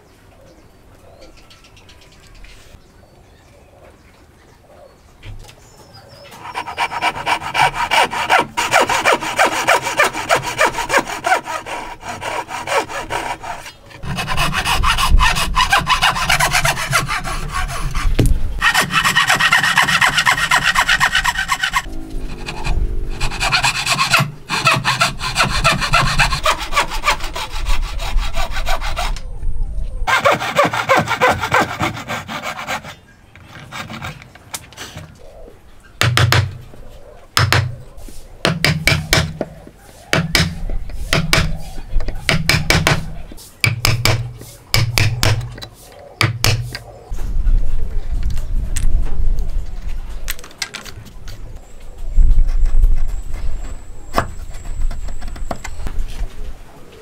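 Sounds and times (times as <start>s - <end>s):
hand saw cutting wood: 6.4s - 29.2s, 30.1s - 35.0s, 40.1s - 43.1s.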